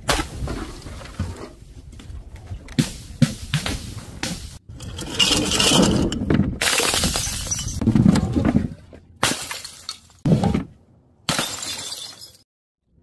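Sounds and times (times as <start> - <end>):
glass jars smashing: 4.8 - 7.8, 11.3 - 12.4.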